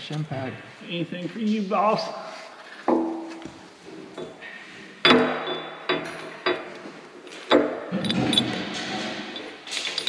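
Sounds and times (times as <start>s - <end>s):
metal knock: 2.9s - 3.5s, 5.0s - 6.7s
metal parts clinking: 5.1s - 10.0s.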